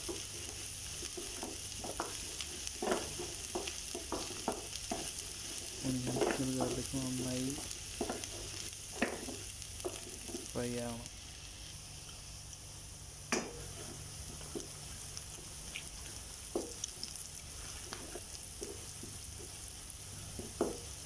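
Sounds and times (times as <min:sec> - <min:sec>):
spatula scraping and knocking pan: 0:00.0 - 0:10.5, 0:16.5 - 0:16.9, 0:17.5 - 0:19.6, 0:20.2 - 0:20.9
vegetables sizzling in hot oil: 0:00.0 - 0:21.0.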